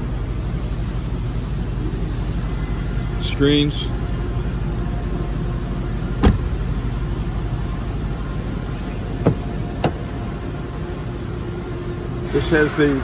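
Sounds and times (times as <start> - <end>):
steady low rumble: 0.0 - 12.4
car door clicks and knocks: 6.2 - 6.5, 9.2 - 10.1.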